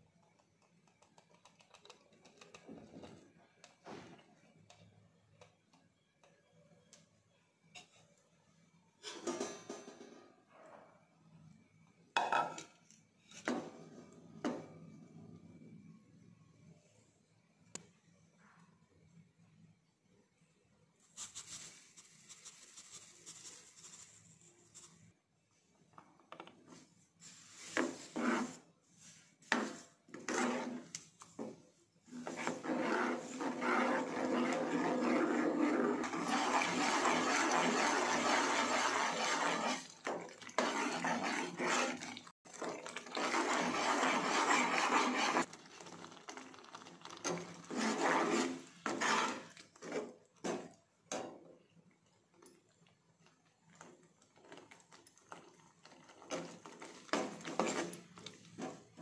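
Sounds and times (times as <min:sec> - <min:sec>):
spoon scraping a pan: 0:27.2 - 0:31.5, 0:32.1 - 0:45.5, 0:47.2 - 0:50.7, 0:56.3 - 0:59.0.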